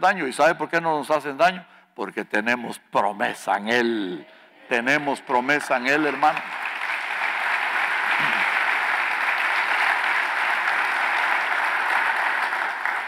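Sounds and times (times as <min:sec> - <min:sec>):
congregation applauding: 0:04.8 - 0:13.0.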